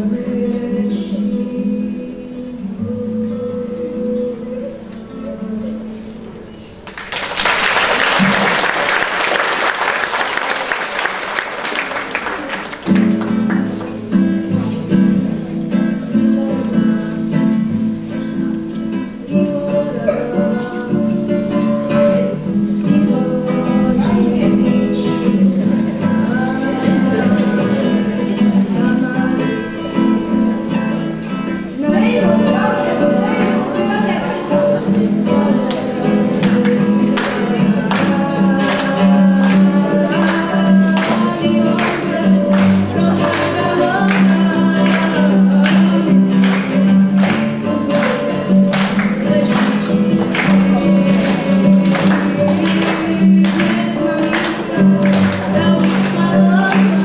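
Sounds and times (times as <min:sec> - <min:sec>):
classical guitar playing: 0:00.0 - 0:07.0, 0:12.2 - 0:57.0
applause: 0:06.8 - 0:14.3, 0:36.4 - 0:57.0
children's choir singing: 0:07.6 - 0:57.0.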